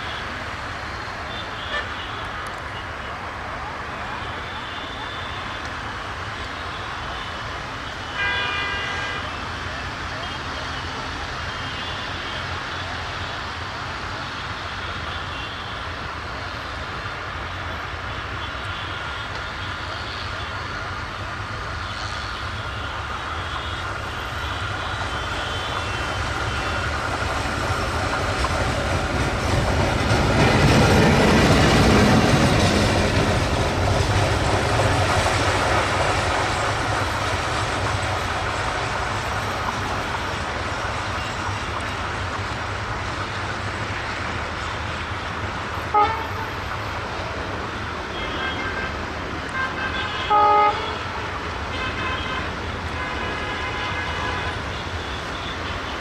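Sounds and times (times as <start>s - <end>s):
diesel locomotive engine running: 0.0s - 56.0s
locomotive horn: 1.3s - 2.6s, 6.5s - 9.5s, 21.8s - 27.3s, 45.7s - 47.0s, 48.0s - 56.0s.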